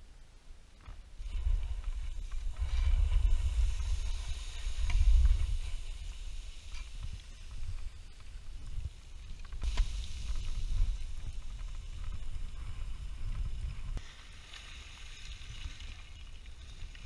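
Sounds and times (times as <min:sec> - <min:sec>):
wind buffeting microphone: 0:01.2 - 0:14.0.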